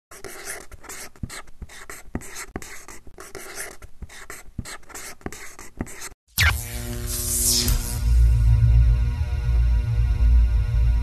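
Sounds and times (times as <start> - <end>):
pen scratching on paper: 0.1 - 6.2.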